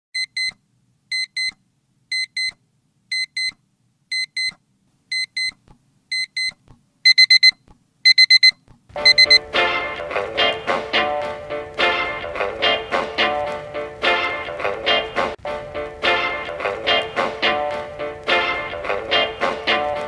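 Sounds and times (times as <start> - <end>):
electronic alarm beeps: 0.2 - 9.4
music with a beat: 9.0 - 20.0.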